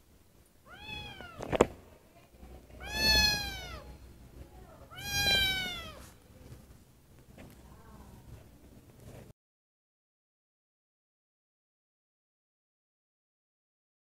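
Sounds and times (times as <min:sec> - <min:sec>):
kitten meowing: 0:00.7 - 0:01.6, 0:02.8 - 0:04.0, 0:04.9 - 0:06.1.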